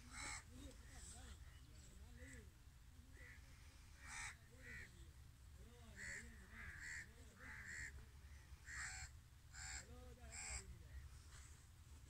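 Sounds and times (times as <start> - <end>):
harsh animal calls: 6.0 - 10.7.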